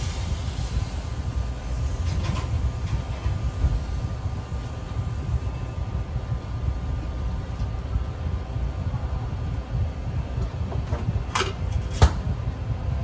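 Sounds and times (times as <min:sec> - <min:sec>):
kitchen machinery rumble: 0:01.6 - 0:06.0, 0:10.2 - 0:12.5.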